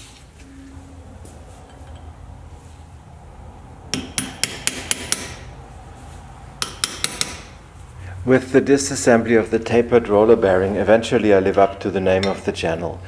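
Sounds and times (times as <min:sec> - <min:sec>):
hammer striking steel chisel: 0:03.9 - 0:05.5, 0:06.6 - 0:07.6, 0:12.2 - 0:12.5.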